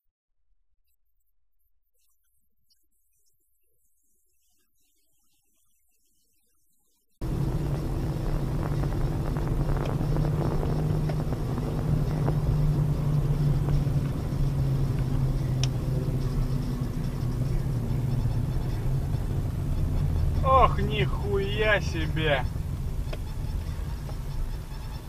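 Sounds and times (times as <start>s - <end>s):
car engine hum and road noise: 7.2s - 25.0s.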